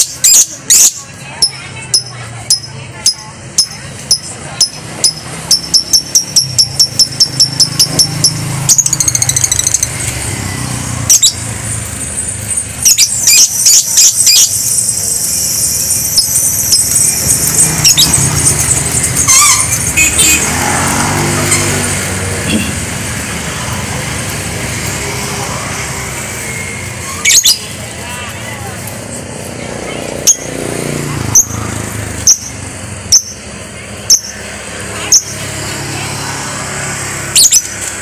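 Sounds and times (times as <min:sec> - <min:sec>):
lovebird chirping and trilling: 0:00.0 - 0:10.1, 0:11.0 - 0:20.6, 0:26.4 - 0:27.8, 0:30.2 - 0:30.6, 0:31.3 - 0:35.5, 0:37.2 - 0:37.8
motorcycle passing: 0:00.0 - 0:38.0
street traffic hum: 0:00.0 - 0:38.0.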